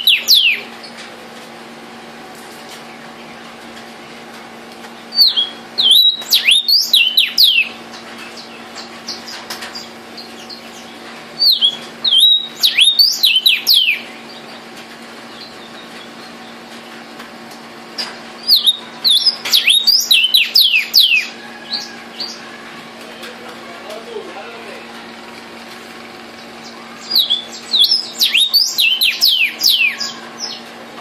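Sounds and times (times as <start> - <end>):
bird whistling song: 0.0 - 0.7, 5.1 - 7.8, 11.4 - 14.2, 18.4 - 21.4, 27.0 - 30.6.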